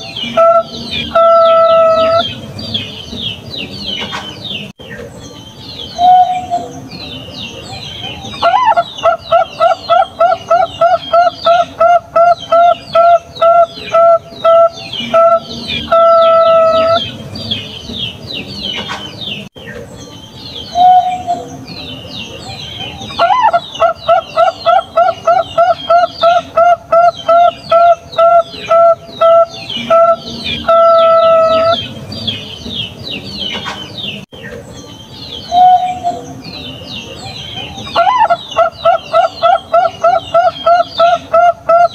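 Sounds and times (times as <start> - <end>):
small birds chirping: 0.0 - 41.9
dove cooing: 22.8 - 31.9, 37.6 - 41.9.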